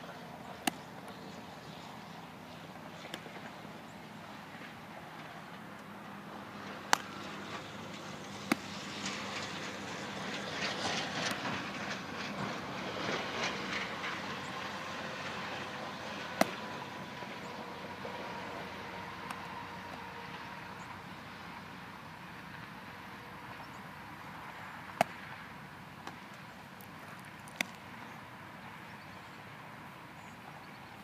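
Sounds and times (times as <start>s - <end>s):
rattling rumbling outdoor noise: 0.0s - 26.8s
baseball smacking into mitt: 6.9s - 7.1s, 16.4s - 16.6s, 25.0s - 25.2s.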